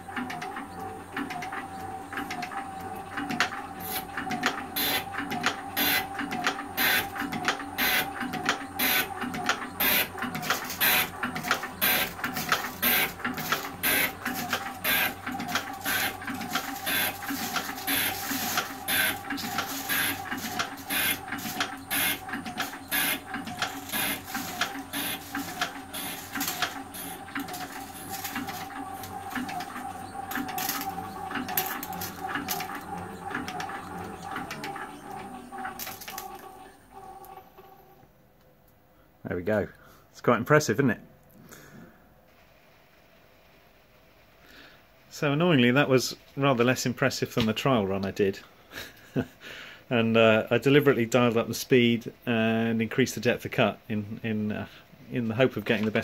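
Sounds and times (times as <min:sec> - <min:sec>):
drive whine: 0:00.0 - 0:38.3.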